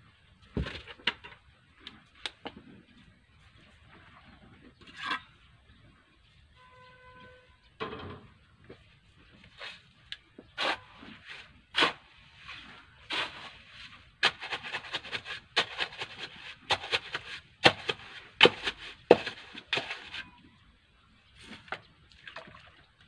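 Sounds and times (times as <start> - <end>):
shovel digging into gritty soil: 10.6 - 20.2.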